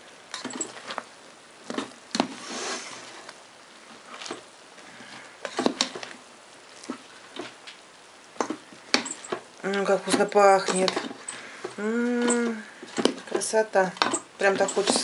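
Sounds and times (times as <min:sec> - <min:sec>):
rice squishing: 0:00.0 - 0:15.0.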